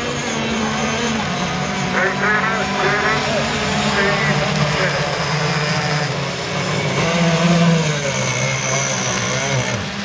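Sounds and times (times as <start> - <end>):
racing boat engines buzzing: 0.0 - 10.0.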